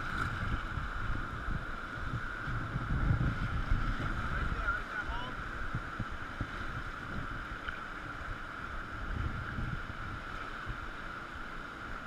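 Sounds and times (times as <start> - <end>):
wind rumble on microphone: 0.0 - 12.0
river rapids rushing: 3.7 - 12.0.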